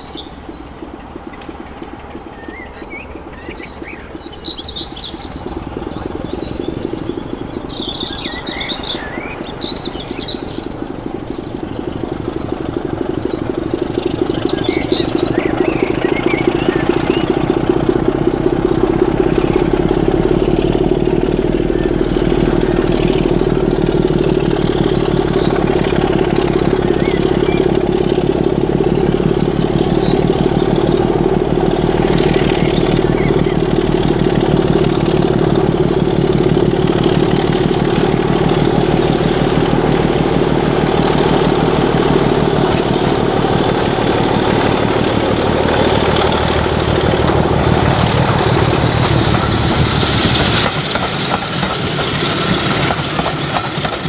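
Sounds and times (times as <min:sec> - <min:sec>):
birds chirping: 0:00.0 - 0:54.0
diesel locomotive engine throbbing: 0:00.0 - 0:54.0.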